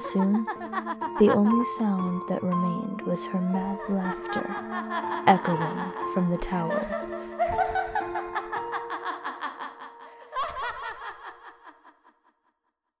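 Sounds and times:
woman laughing madly: 0.4s - 1.2s, 4.1s - 12.6s.

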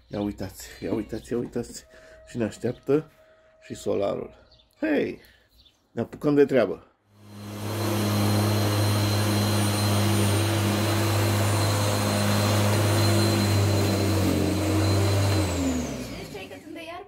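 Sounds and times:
electric lawn mower running: 7.2s - 16.9s.

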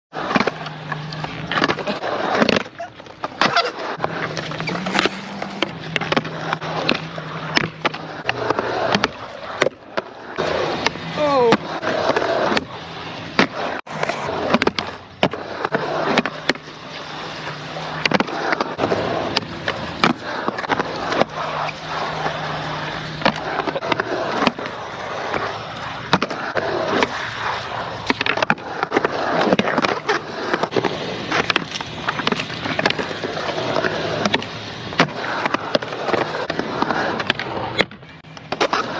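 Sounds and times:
skateboard wheels rolling on concrete: 0.1s - 38.9s
skateboard clacks on concrete: 0.2s - 12.7s, 13.3s - 38.9s.

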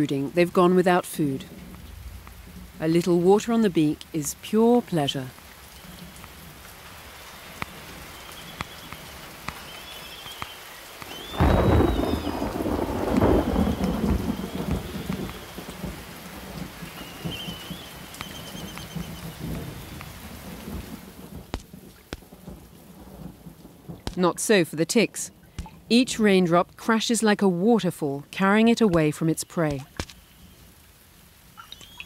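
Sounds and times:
steady rain: 0.0s - 32.0s
thunder rumbling: 1.4s - 4.4s, 5.3s - 27.0s.

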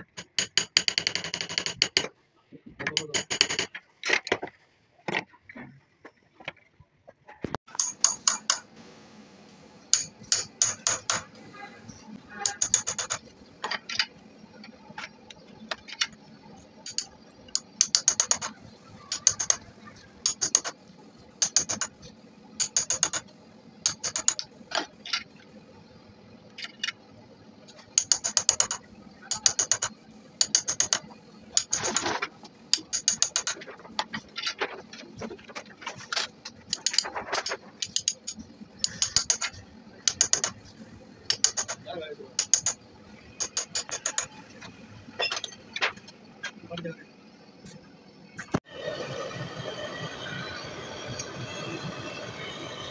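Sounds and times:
metallic clicks and taps: 12.5s - 14.1s, 16.8s - 19.6s, 20.2s - 20.8s, 21.4s - 24.5s, 27.7s - 34.1s, 36.5s - 41.8s, 42.4s - 42.8s, 43.4s - 44.4s.

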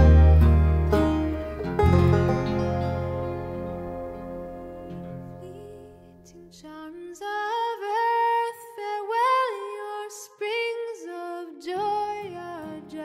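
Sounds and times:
low accompanying tones: 0.0s - 6.4s
instrumental music: 0.0s - 6.5s
woman singing lullaby melody: 5.3s - 13.0s.

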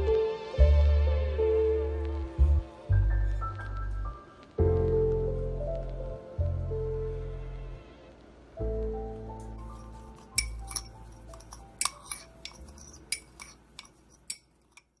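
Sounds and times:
background music: 0.0s - 13.0s
metal spoon clinking on bowl: 10.2s - 15.0s.

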